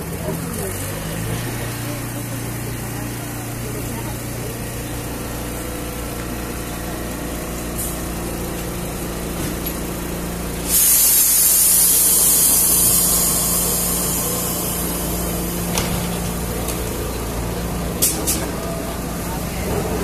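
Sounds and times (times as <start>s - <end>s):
tram motor hum: 0.0s - 20.0s
loud hiss: 10.6s - 15.9s.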